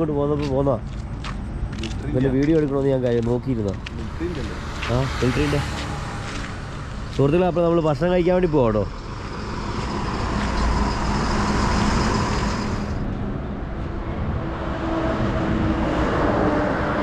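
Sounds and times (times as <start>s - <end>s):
truck engines rumbling: 0.0s - 17.0s
faint whining tones: 5.9s - 14.5s.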